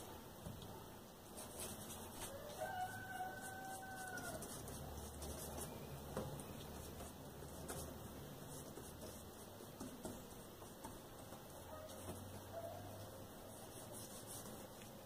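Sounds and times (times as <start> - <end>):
faint rooster crowing: 1.9 - 6.7, 11.6 - 13.8.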